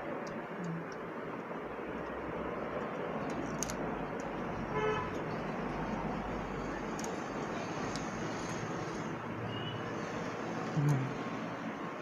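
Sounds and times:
background traffic noise: 0.0 - 12.0.

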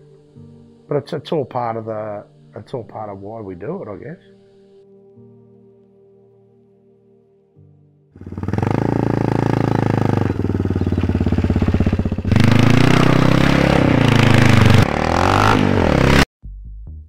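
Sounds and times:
motorcycle engine revving: 8.2 - 16.3.

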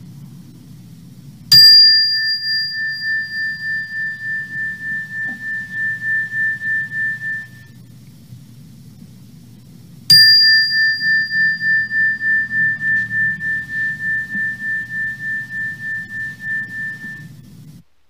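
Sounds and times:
faint low hum: 0.0 - 18.0
meditation chime ringing: 1.5 - 7.8, 10.1 - 17.3.

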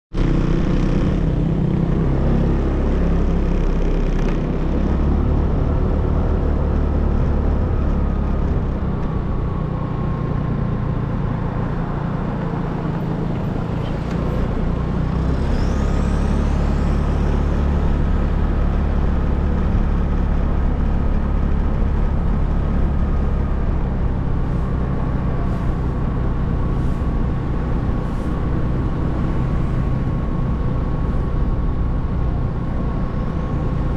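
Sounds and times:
vehicle engine rumble: 0.1 - 33.9
high rising squeal: 13.2 - 19.4.

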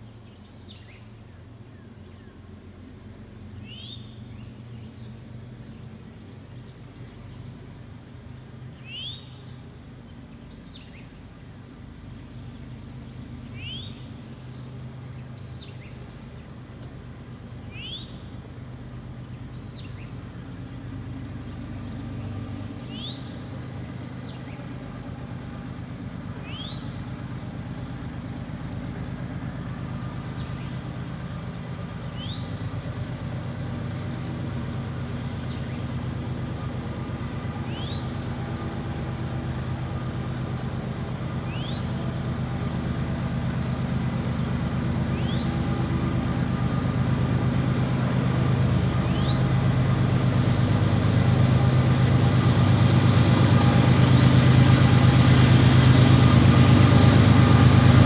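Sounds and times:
diesel locomotive engines humming: 0.0 - 58.0
bird chirping: 3.6 - 5.2, 8.4 - 11.3, 17.6 - 18.3, 19.2 - 20.8, 26.4 - 27.0, 32.1 - 32.7, 37.6 - 38.2, 41.5 - 42.1, 45.1 - 45.7, 49.0 - 49.5.

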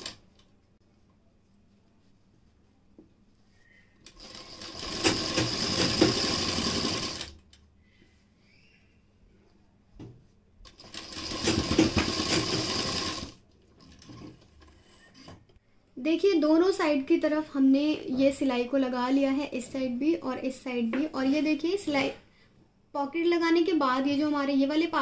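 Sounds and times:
sewing machine stitching: 4.1 - 7.4, 10.7 - 14.8.

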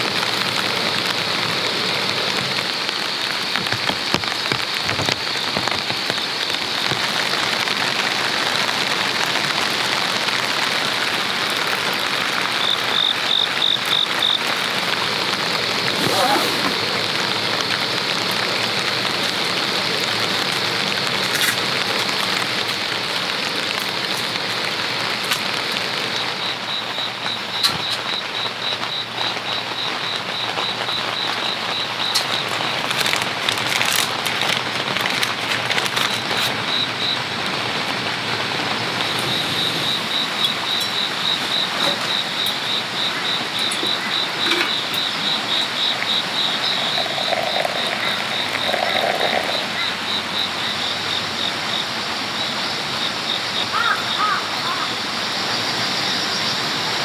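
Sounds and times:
steady rain falling: 0.0 - 57.0
faint clicks and crinkles: 32.1 - 36.6.

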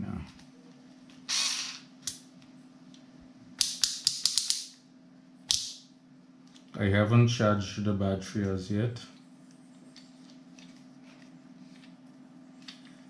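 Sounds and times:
short hissing bursts: 1.3 - 1.9
sharp ratcheting clicks: 3.6 - 4.7.

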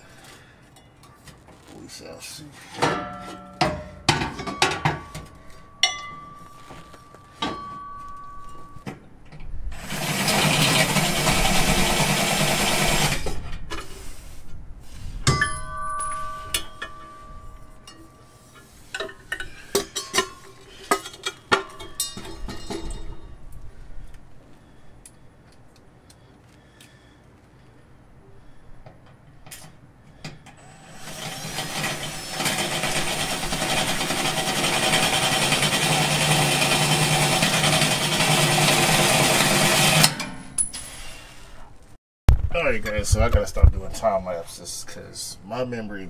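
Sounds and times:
metal tools clinking: 2.7 - 8.9, 15.3 - 23.6
power drill running: 9.8 - 13.3, 30.6 - 40.1.

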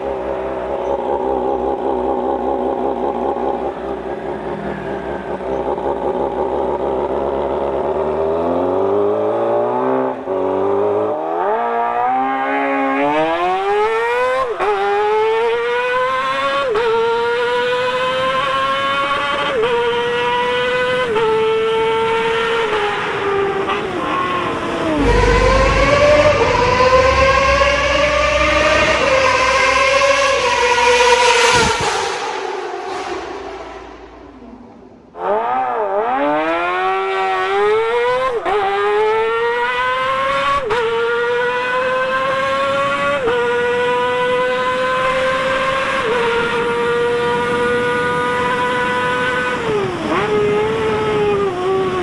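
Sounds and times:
motorcycle engine screaming at high revs: 0.0 - 32.7, 35.1 - 52.0.

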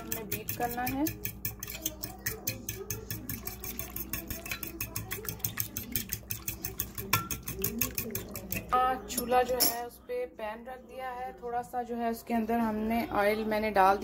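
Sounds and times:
fork beating eggs in a dish: 0.0 - 9.8.

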